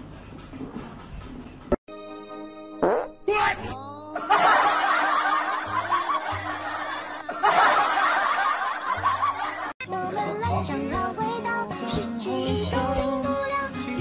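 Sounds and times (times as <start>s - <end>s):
crowd laughter: 4.2s - 9.8s.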